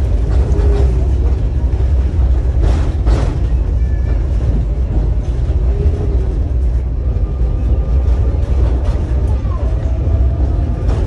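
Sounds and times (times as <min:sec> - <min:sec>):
tram wheels rumbling: 0:00.0 - 0:11.0.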